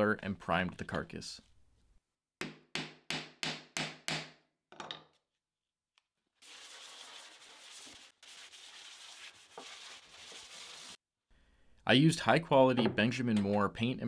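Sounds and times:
sandpaper strokes on wood: 6.4 - 11.0.

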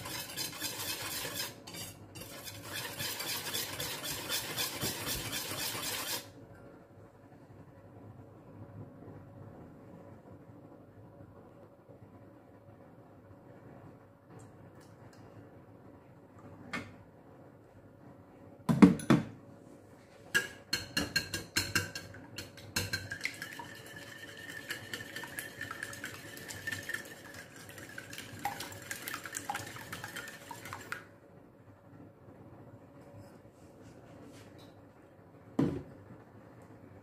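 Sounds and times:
whisk clattering in glass bowl: 0.0 - 6.2, 20.4 - 31.0.

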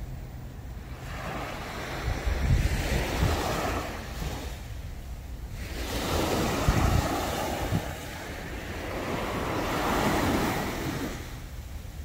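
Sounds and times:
wind buffeting microphone: 0.0 - 12.0
small waves breaking on sand: 0.7 - 12.0.

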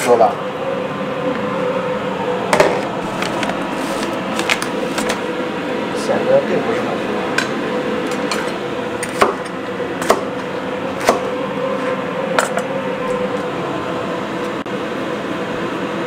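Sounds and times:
steady background hum: 0.0 - 16.0
cleaver chopping on cutting board: 9.0 - 9.4, 10.0 - 10.3, 11.0 - 11.3.

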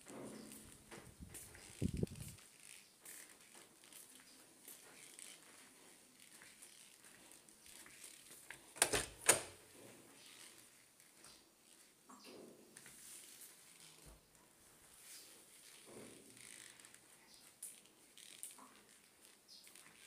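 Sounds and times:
faint rustling: 0.0 - 8.8.

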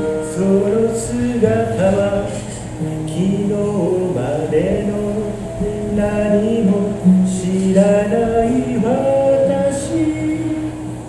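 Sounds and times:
acoustic guitar: 0.0 - 11.0
man singing: 0.0 - 11.0.

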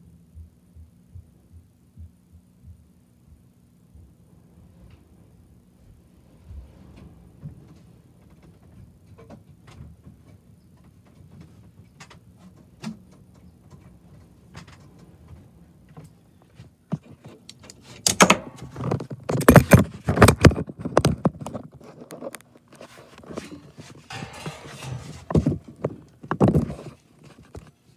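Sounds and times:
faint low hum: 0.0 - 19.8, 21.5 - 27.9
loud rattling and knocking: 24.1 - 26.0.

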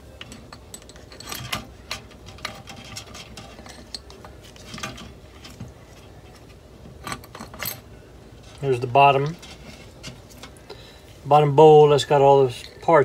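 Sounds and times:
metal parts clinking in a can: 0.2 - 5.6.

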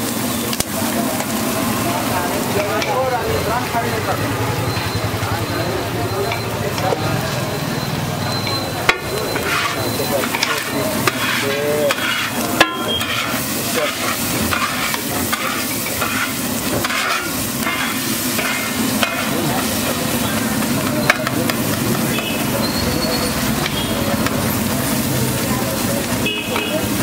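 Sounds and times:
egg sizzling: 0.0 - 27.0
metal spatula scraping griddle: 8.8 - 21.3.

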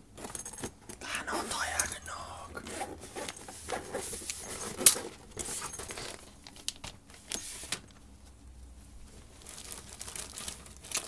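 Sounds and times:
plastic packaging crinkling: 9.1 - 11.0.

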